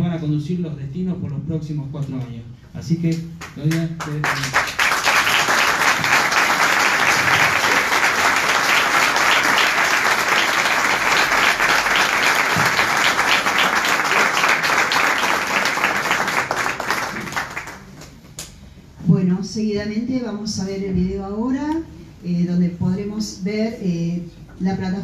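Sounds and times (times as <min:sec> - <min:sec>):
people applauding: 0:03.4 - 0:18.2.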